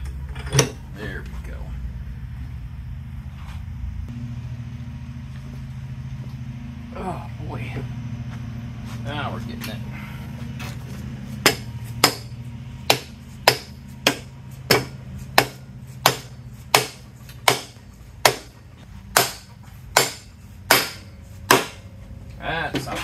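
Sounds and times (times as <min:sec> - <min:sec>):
hammer striking metal: 0:11.4 - 0:21.9.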